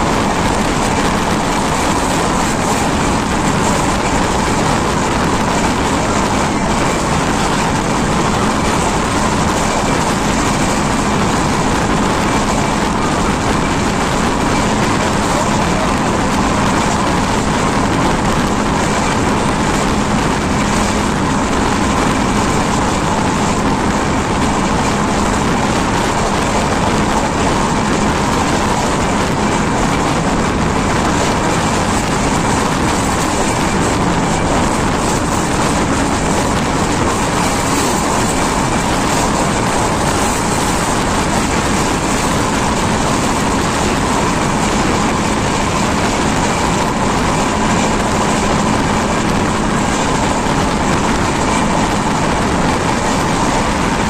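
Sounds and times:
train wheel on rail rumble: 0.0s - 54.0s.

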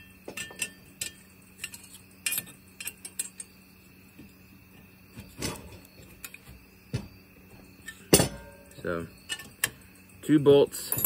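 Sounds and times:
wrench clinking on metal bolt: 0.3s - 3.5s.

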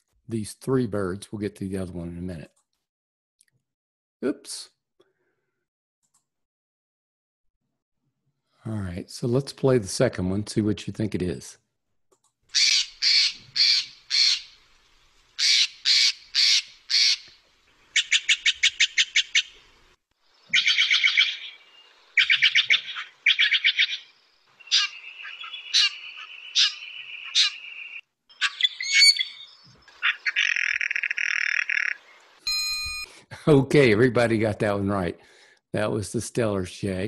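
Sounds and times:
jay harsh rasping calls: 12.5s - 14.6s, 15.4s - 17.3s, 20.5s - 21.6s, 22.2s - 24.1s, 24.7s - 27.6s, 30.0s - 32.0s.

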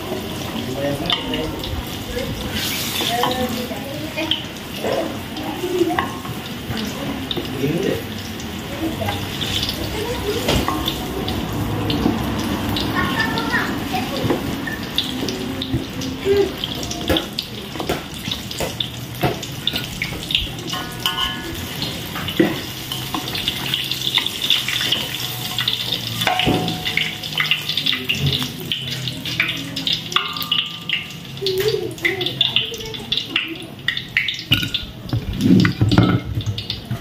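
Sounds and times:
tap water running into sink: 0.0s - 37.0s
utensils clattering: 14.1s - 31.6s, 34.4s - 36.6s.

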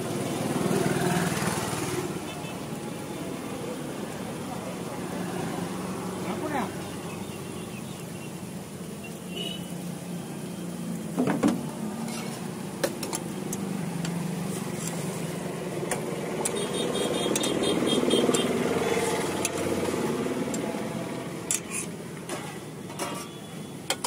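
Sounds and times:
street traffic hum: 0.0s - 24.0s
metal spatula scraping griddle: 12.0s - 12.5s, 14.5s - 15.3s, 21.4s - 24.0s.

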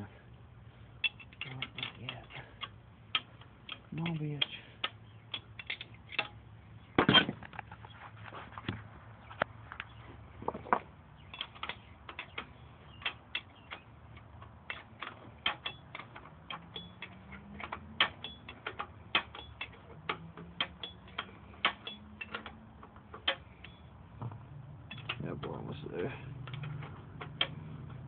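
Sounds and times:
ratchet wrench clicking: 11.4s - 23.9s.

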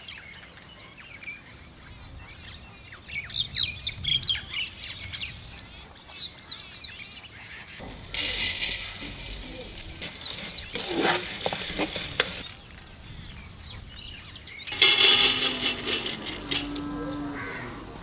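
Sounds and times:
lentils rattling in dry pan: 7.8s - 12.4s, 14.7s - 16.9s.

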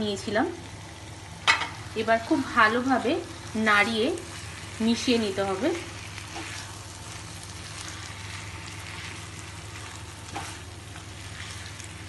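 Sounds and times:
food sizzling in a frying pan: 0.0s - 12.0s
spatula scraping a pan: 6.0s - 12.0s.

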